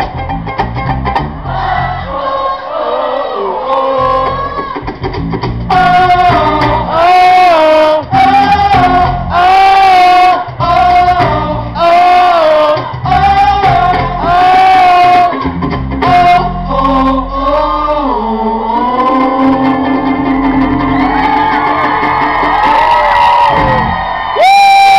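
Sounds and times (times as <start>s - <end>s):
person singing: 1.6s - 4.9s, 5.7s - 21.5s
percussion: 4.0s - 16.6s, 19.0s - 24.2s.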